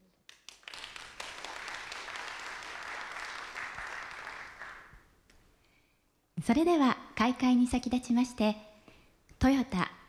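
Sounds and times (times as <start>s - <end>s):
audience applauding: 0.3s - 5.0s.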